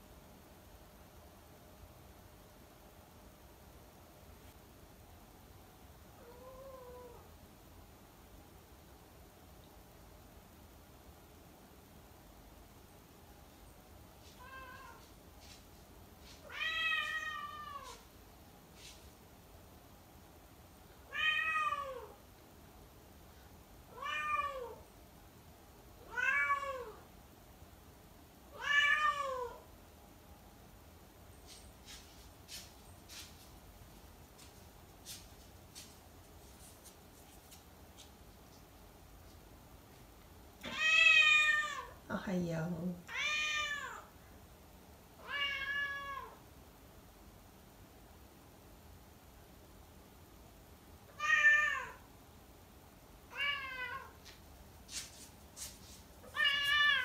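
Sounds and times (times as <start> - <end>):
cat meowing: 14.4 - 15.0, 16.4 - 18.0, 21.1 - 22.2, 23.9 - 24.8, 26.0 - 27.0, 28.5 - 29.6, 40.6 - 42.0, 43.1 - 44.1, 45.2 - 46.4, 51.1 - 52.0, 53.3 - 54.2, 56.2 - 57.0.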